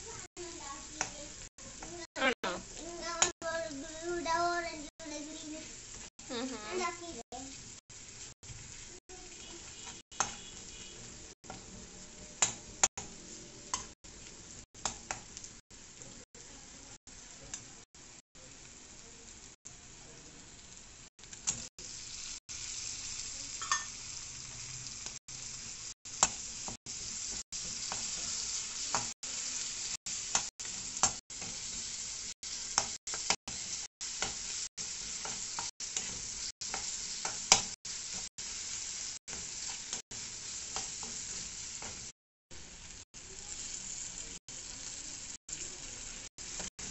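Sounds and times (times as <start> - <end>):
food sizzling in hot oil: 0.0 - 46.9
spatula stirring and scraping: 8.1 - 11.8, 32.7 - 42.1
spatula clicking on pan: 10.2 - 10.4, 12.4 - 13.1, 13.7 - 13.9, 14.8 - 15.3, 32.7 - 33.4, 35.2 - 37.8.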